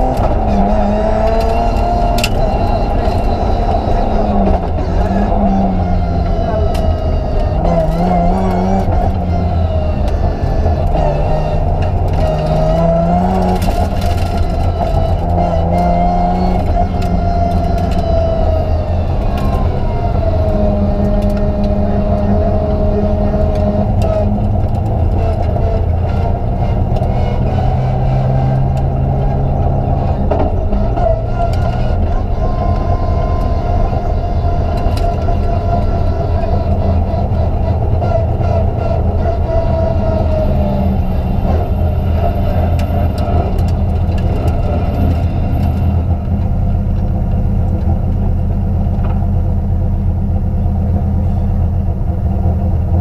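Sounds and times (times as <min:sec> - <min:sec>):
rally car engine revving: 0:00.0 - 0:53.0.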